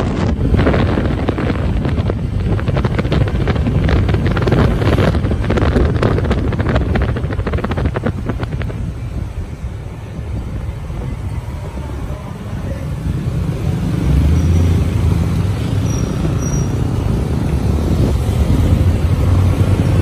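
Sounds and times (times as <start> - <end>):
vehicle engine and road rumble: 0.0 - 20.0
wind buffeting microphone: 0.0 - 20.0.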